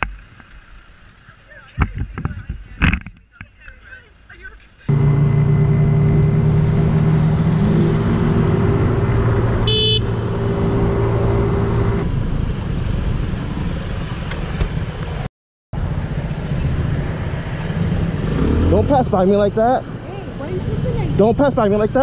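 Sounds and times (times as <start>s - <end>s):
road and wind noise: 0.0s - 22.0s
motorcycle engine running: 4.9s - 12.0s
horn toot: 7.6s - 11.1s.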